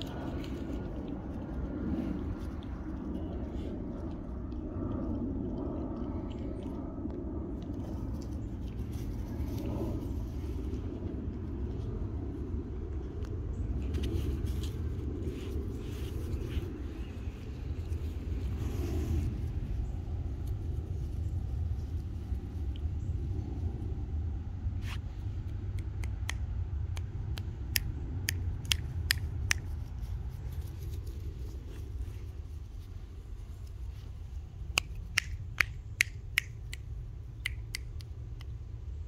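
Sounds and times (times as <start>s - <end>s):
steady low rumble: 0.0s - 39.0s
sharp short clicks: 34.7s - 38.6s.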